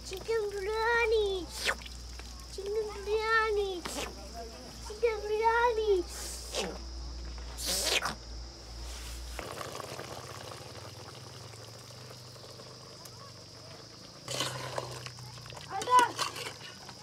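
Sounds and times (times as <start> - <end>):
wood fire hiss and crackles: 0.0 - 17.0.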